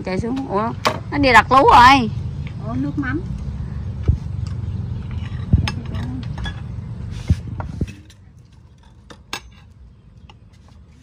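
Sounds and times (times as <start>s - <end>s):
low engine hum: 0.0s - 8.8s.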